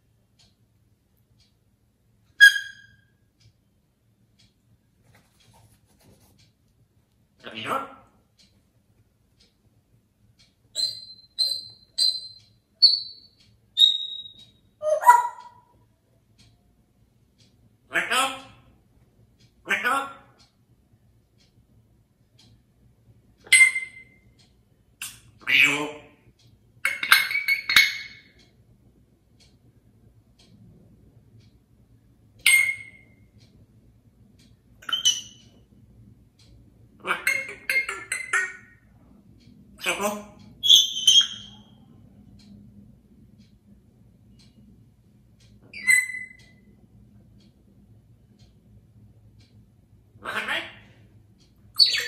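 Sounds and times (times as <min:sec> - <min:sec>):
parrot whistling: 0:02.4 - 0:03.1, 0:10.8 - 0:15.6, 0:23.4 - 0:24.2, 0:32.4 - 0:33.2, 0:34.8 - 0:35.4, 0:40.6 - 0:41.7, 0:45.7 - 0:46.4, 0:51.8 - 0:52.0.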